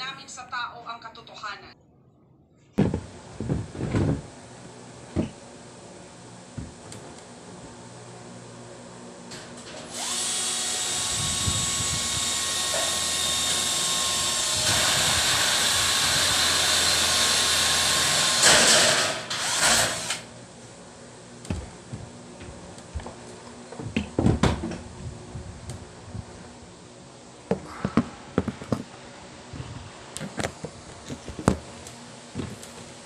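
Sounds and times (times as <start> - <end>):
knocks and clunks: 2.8 - 4.3
electric drill drilling into metal: 9.8 - 20.3.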